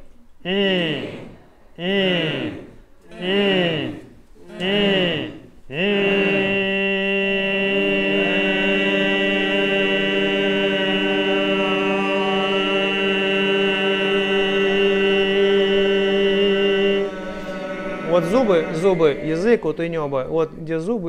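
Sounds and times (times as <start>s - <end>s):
man throat singing: 0.4s - 8.5s, 14.3s - 20.1s.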